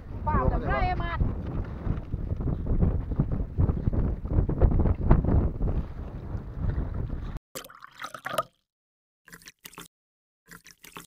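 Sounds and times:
wind buffeting microphone: 0:00.0 - 0:07.4
trickling water: 0:07.6 - 0:08.7, 0:09.3 - 0:09.9, 0:10.5 - 0:11.0.

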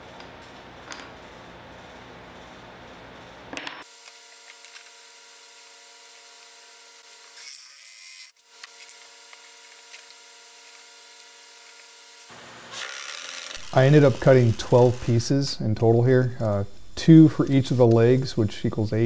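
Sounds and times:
reciprocating saw cutting metal: 0:11.2 - 0:15.4
steady low hum: 0:13.6 - 0:19.0.

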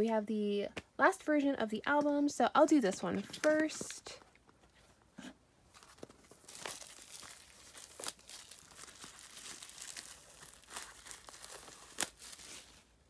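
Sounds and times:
plastic shrink wrap crinkling: 0:05.7 - 0:13.0.

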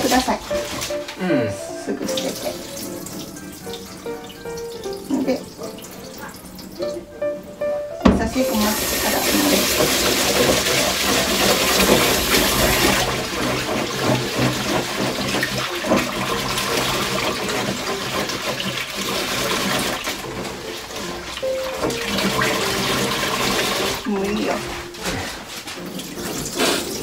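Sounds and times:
tap running into bowl: 0:08.0 - 0:24.7
rice stirred by hand: 0:08.5 - 0:27.0.

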